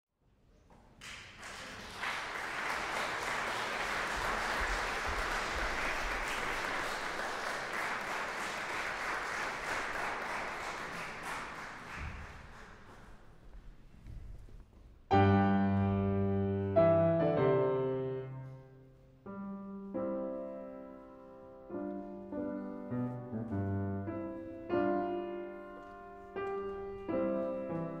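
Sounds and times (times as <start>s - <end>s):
audience applauding: 1.0s - 13.4s.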